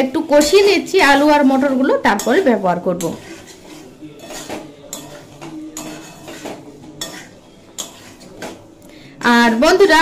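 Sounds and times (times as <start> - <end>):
food frying: 0.0 - 10.0
metal spatula scraping metal pan: 0.1 - 10.0.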